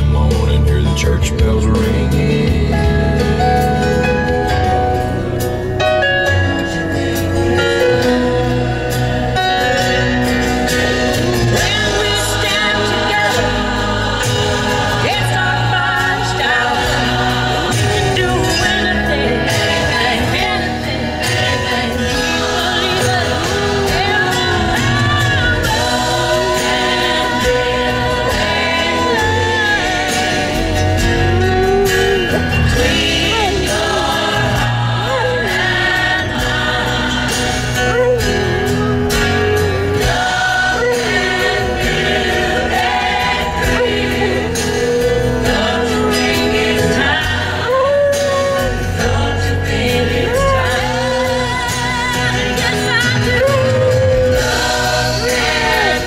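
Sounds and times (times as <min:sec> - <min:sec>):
song on car stereo: 0:00.0 - 0:56.0
dog howling: 0:19.6 - 0:52.0, 0:53.3 - 0:56.0.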